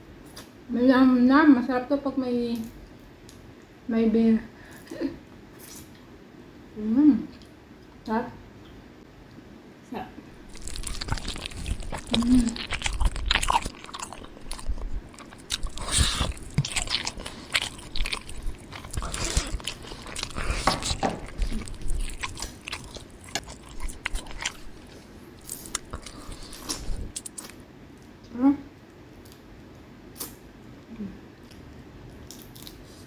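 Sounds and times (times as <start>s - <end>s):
chewing and mouth clicks: 10.4s - 27.6s.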